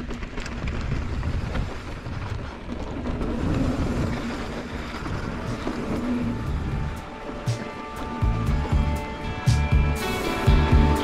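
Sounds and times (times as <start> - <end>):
bike clicks and rattles: 0.0 - 8.0
bike tyres rumbling on dirt: 0.0 - 9.0
wind on microphone: 0.0 - 11.0.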